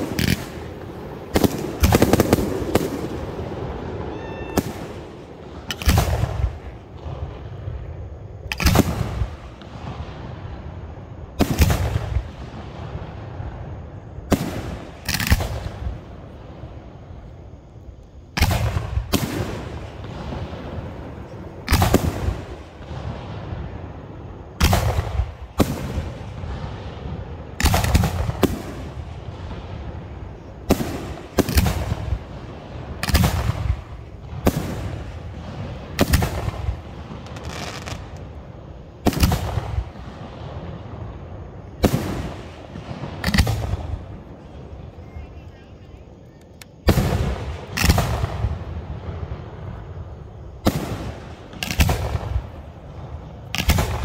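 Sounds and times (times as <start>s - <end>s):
firework shells bursting: 0.0s - 3.4s, 4.1s - 7.0s, 41.8s - 44.1s, 50.6s - 52.8s, 53.5s - 54.0s.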